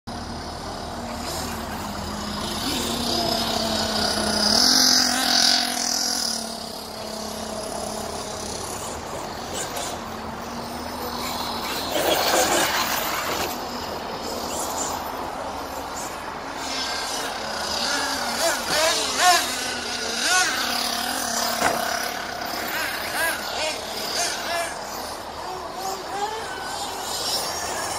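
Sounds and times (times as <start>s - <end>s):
electric toy truck motor whine: 0.1s - 27.9s.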